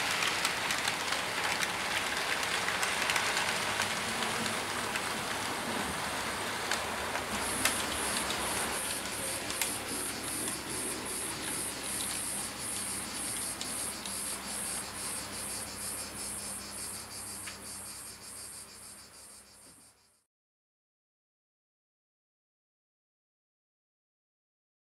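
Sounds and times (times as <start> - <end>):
model train wheels clattering: 0.0 - 16.2.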